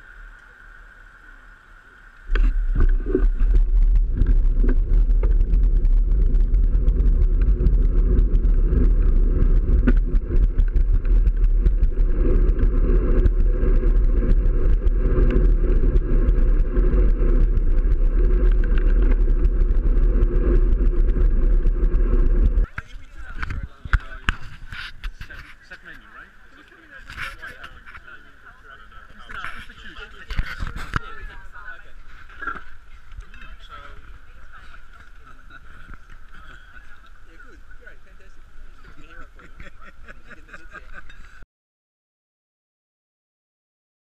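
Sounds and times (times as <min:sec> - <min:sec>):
tyre and road noise: 0:00.0 - 0:41.2
bike clicks: 0:02.2 - 0:22.8
wind buffeting microphone: 0:02.3 - 0:25.4.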